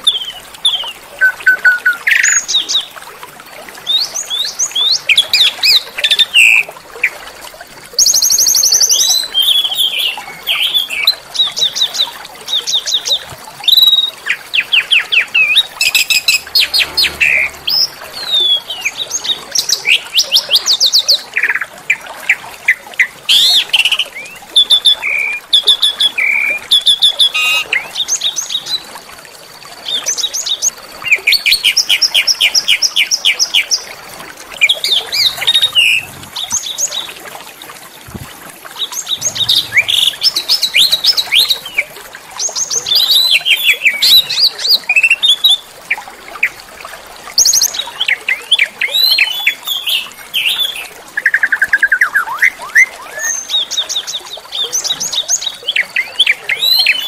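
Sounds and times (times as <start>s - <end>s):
songbirds trilling: 34.6s - 37.1s, 39.1s - 41.6s.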